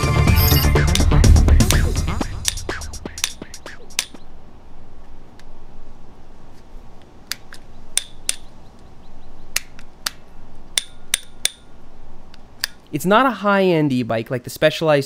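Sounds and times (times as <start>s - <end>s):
bicycle shifter clicking: 2.4s - 4.2s.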